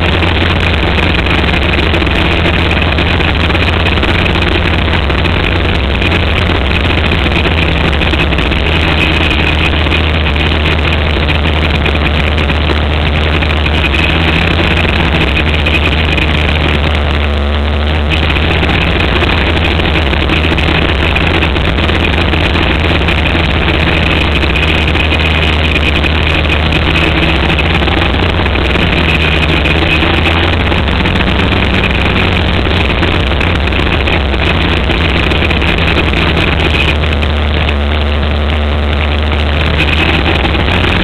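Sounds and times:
race car engine droning: 0:00.0 - 0:41.0.

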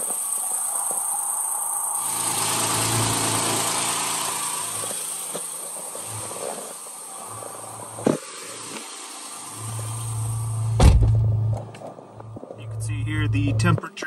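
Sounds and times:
car engine idling: 0:00.2 - 0:14.0
loud thump: 0:10.8 - 0:11.4.

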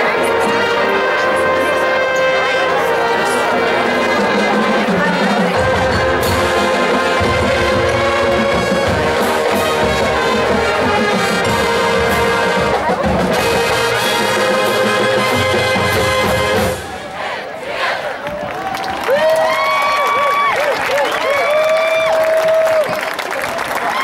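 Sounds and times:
sousaphones: 0:00.0 - 0:17.4
trumpets and brass: 0:00.0 - 0:18.2
drumline: 0:00.0 - 0:19.8.

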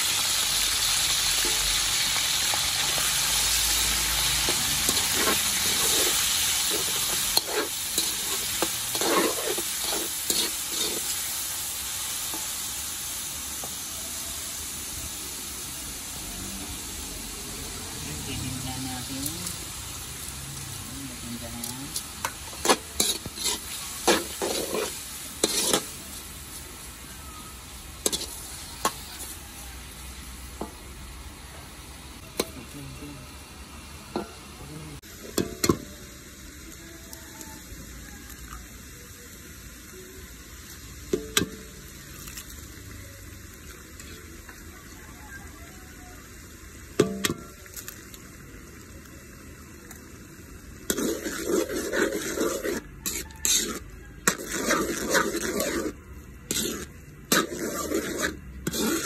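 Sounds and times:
meat sizzling in a wok: 0:00.0 - 0:59.0
spatula scraping and stirring: 0:00.9 - 0:11.4, 0:21.1 - 0:26.6, 0:28.0 - 0:29.4, 0:50.8 - 0:59.0.

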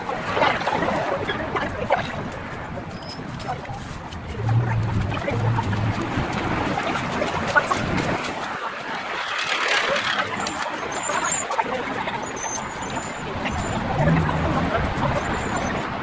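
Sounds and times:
car passing on road: 0:04.1 - 0:10.4, 0:13.4 - 0:16.0.

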